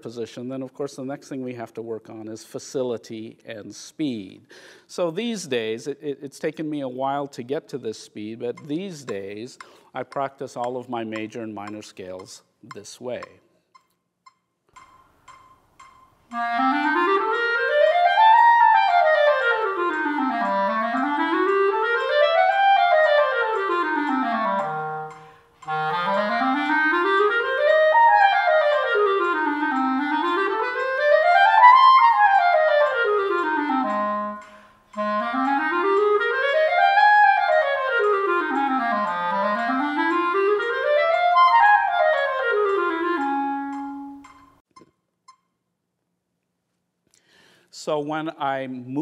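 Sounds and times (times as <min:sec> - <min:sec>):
clarinet playing scales: 0:14.8 - 0:44.6.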